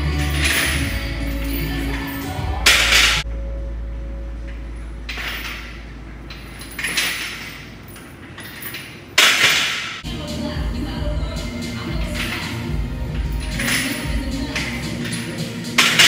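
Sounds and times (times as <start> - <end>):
chains clinking and rattling: 0.0 - 3.2, 5.1 - 9.2, 11.4 - 16.0
low steady hum: 0.0 - 16.0.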